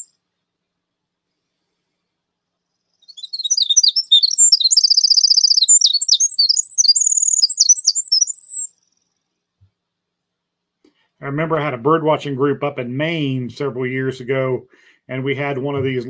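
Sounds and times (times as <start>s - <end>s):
wren song with rapid trills: 2.7s - 9.5s.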